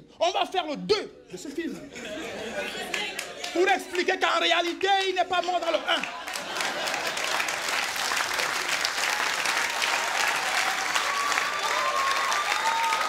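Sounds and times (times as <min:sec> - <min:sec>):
audience applauding: 0:02.9 - 0:13.0.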